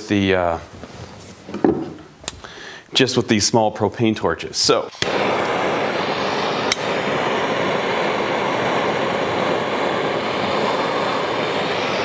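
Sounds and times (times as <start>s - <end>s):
propane torches hissing: 4.6s - 12.0s
torch lighter click: 4.9s - 12.0s.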